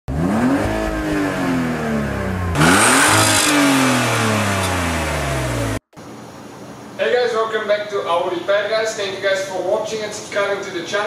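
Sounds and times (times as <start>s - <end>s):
car engine revving: 0.1s - 5.8s.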